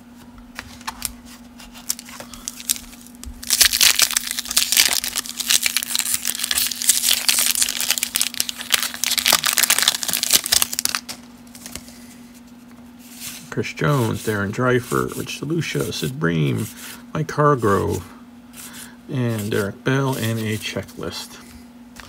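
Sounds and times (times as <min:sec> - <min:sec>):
steady low hum: 0:00.0 - 0:22.0
paper wrapper crinkling and tearing: 0:00.6 - 0:12.0.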